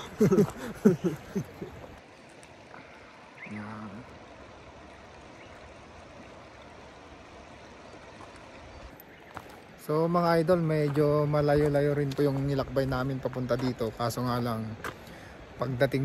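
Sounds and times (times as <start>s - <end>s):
voiced hum: 0.0s - 7.6s
river rushing: 0.0s - 16.0s
man speaking: 9.8s - 14.8s.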